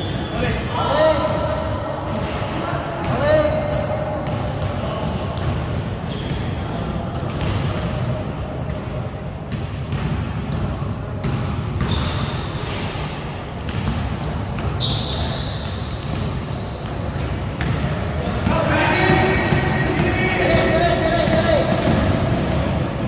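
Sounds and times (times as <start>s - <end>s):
sneakers squeaking on floor: 0.0s - 7.8s, 9.5s - 23.0s
basketball bouncing: 4.2s - 8.1s, 8.7s - 12.2s, 13.6s - 23.0s.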